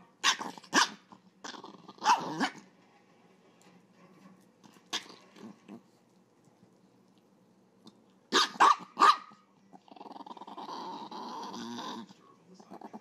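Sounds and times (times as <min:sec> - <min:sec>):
small dog barking: 0:00.2 - 0:01.1, 0:02.0 - 0:02.6, 0:08.3 - 0:09.5.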